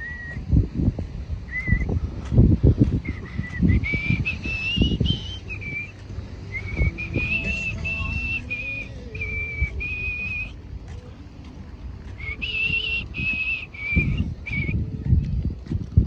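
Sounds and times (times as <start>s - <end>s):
low rumble: 0.0s - 16.0s
person whistling a tune: 1.5s - 1.9s, 3.0s - 10.6s, 12.2s - 14.8s.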